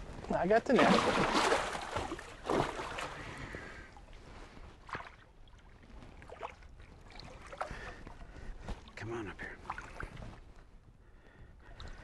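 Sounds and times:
water splashing against boat: 0.6 - 3.7.

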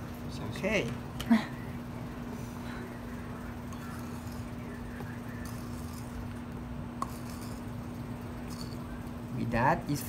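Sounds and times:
spoon scraping clay bowl: 3.7 - 4.8, 5.4 - 6.3, 7.0 - 8.9.

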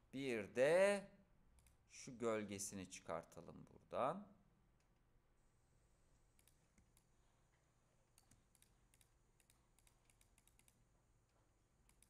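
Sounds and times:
faint computer mouse clicks: 6.4 - 7.1, 8.1 - 10.8.

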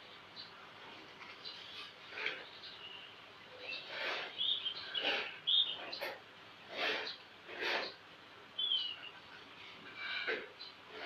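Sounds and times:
bird chirping: 1.3 - 8.0, 8.6 - 10.8.

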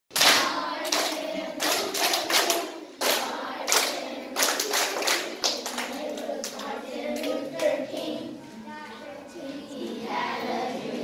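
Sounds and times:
rhythmic hand clapping: 0.1 - 8.2
children singing: 0.1 - 11.0.

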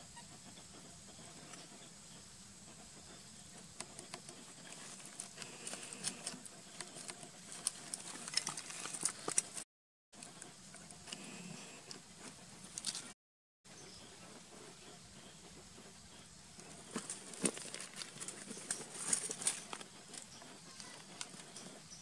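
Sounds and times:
pebbles and leaves rustling: 4.6 - 9.6, 16.6 - 21.6.

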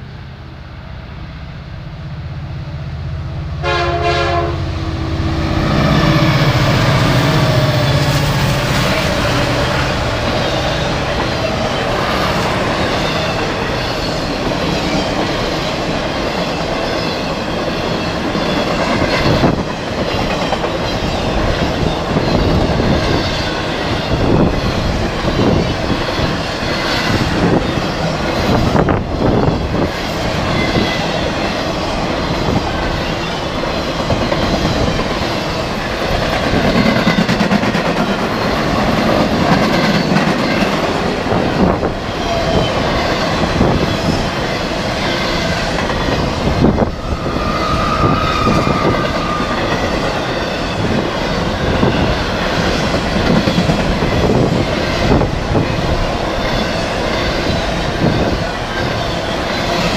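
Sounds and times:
steel wheels rumbling on rail: 0.0 - 59.9
clickety-clack over rail joints: 6.0 - 59.9
wheels squealing: 42.1 - 52.8.

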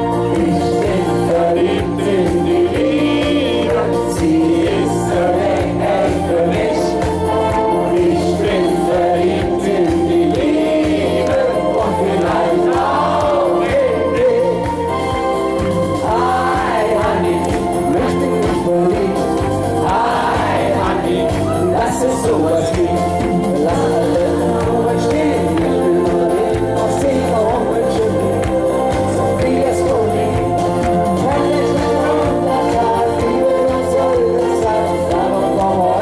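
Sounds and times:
man singing into microphone: 0.0 - 15.0, 16.0 - 36.0
amplified pop music with beat: 0.0 - 36.0.

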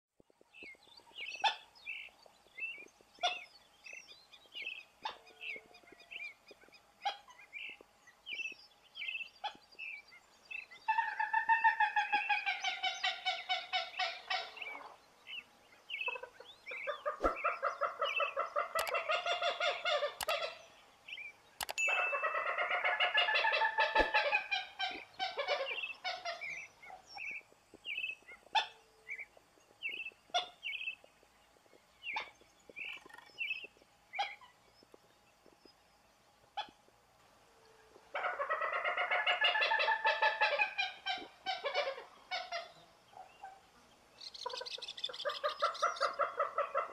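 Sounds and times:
gallinule harsh clucking calls: 3.2 - 4.0, 10.8 - 15.0, 16.0 - 20.7, 21.6 - 28.8, 29.8 - 31.0, 38.1 - 42.8, 44.3 - 46.9.

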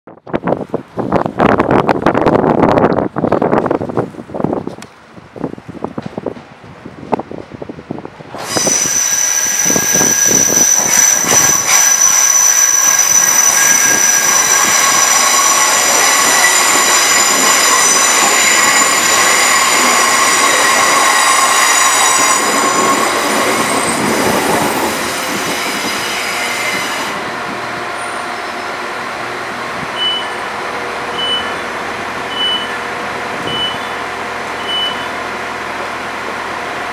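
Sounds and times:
standing train humming: 0.3 - 36.9
train brakes squealing: 8.4 - 27.2, 28.0 - 28.8, 30.0 - 32.9, 33.5 - 34.0, 34.6 - 35.2
door alert beeps: 30.0 - 30.4, 31.2 - 31.6, 32.3 - 32.8, 33.5 - 34.0, 34.6 - 35.1.

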